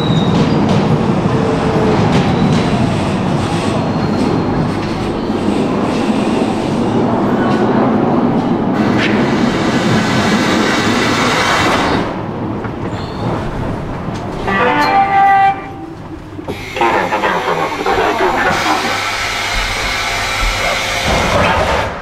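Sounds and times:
metro train running: 0:00.0 - 0:22.0
pitched signal tone: 0:14.5 - 0:16.0.

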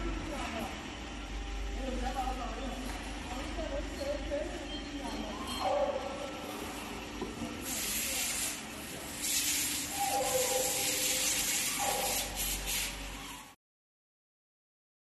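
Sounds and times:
wet stone-cutting machine: 0:07.6 - 0:13.6.

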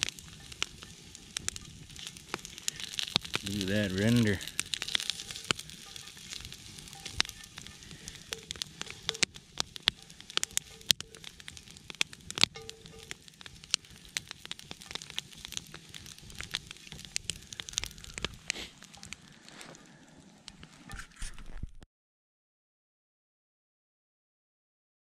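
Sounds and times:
meat sizzling in a skillet: 0:00.0 - 0:19.4
fat popping and crackling: 0:00.0 - 0:21.8.

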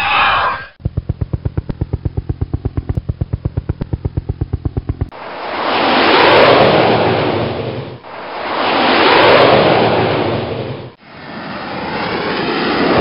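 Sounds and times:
rapid low thumps: 0:00.8 - 0:05.2
rush of noise passing by: 0:05.1 - 0:13.0.

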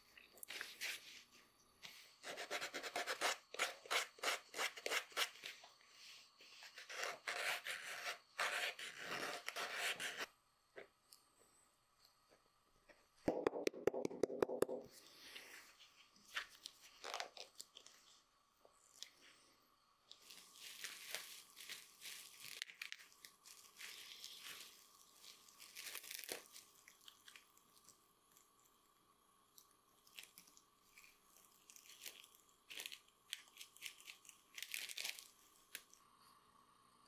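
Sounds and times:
plastic crinkling and rustling: 0:20.1 - 0:27.9, 0:30.1 - 0:36.0.

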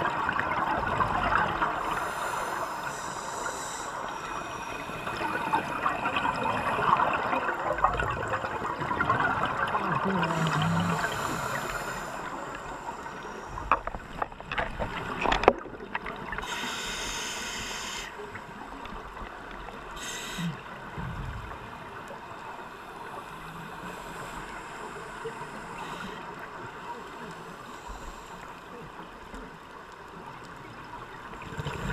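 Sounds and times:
exhaled bubbles crackling: 0:00.0 - 0:22.5, 0:30.5 - 0:31.9
water noise: 0:00.0 - 0:31.9
short hisses: 0:16.4 - 0:18.1.

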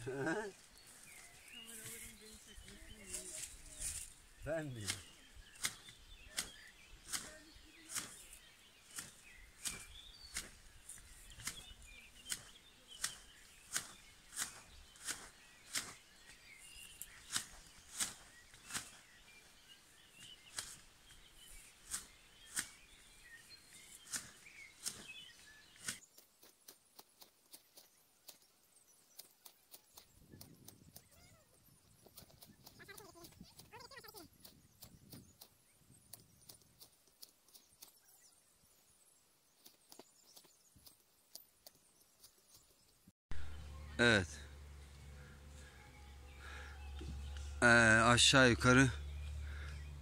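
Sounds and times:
faint birdsong: 0:00.0 - 0:50.0
shears snipping: 0:04.8 - 0:28.4.

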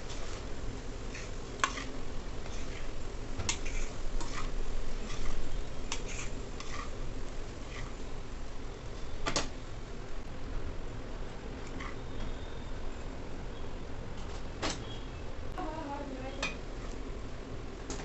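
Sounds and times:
spoon scraping steel pan: 0:01.1 - 0:07.0, 0:07.7 - 0:08.0.

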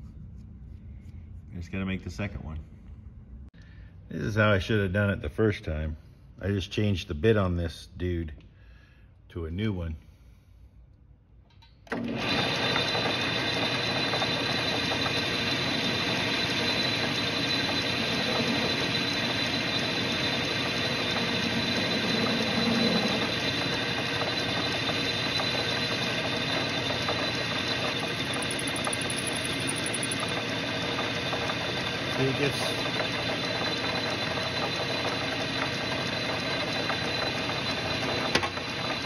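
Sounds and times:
metal lathe running: 0:11.9 - 0:39.0
cutting tool turning threads: 0:12.2 - 0:39.0.

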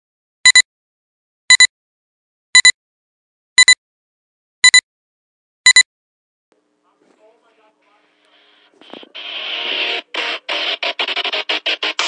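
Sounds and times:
high-pitched double beeps: 0:02.6 - 0:02.8, 0:04.6 - 0:04.8.

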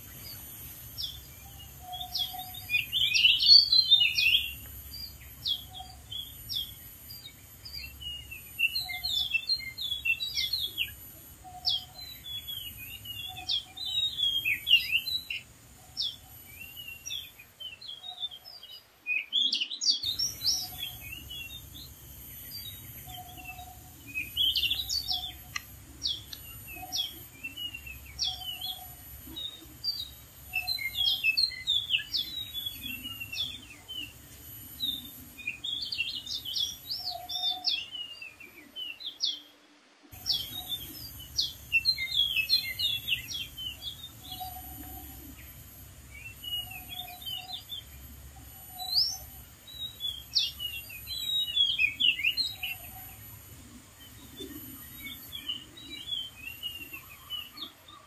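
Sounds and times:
bird singing whistles and chirps: 0:00.0 - 0:39.5, 0:40.2 - 0:53.2, 0:54.0 - 0:58.0.

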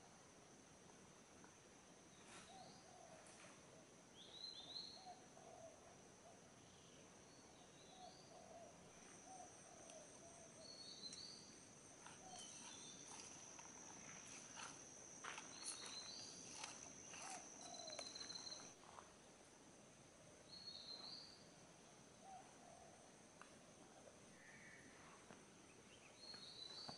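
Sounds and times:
high-pitched insect drone: 0:12.0 - 0:18.7
low warbling bird calls: 0:15.5 - 0:18.7.

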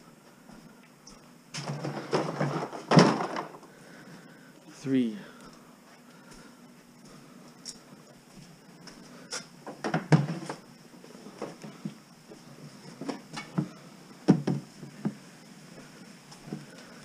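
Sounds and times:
plastic totes knocking and clunking: 0:01.5 - 0:03.7, 0:09.6 - 0:10.6, 0:12.9 - 0:15.2.

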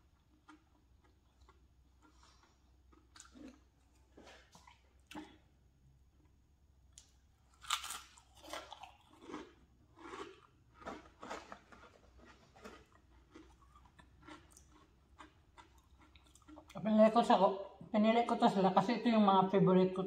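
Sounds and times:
crunchy chips being chewed: 0:00.0 - 0:05.4, 0:06.9 - 0:16.8.

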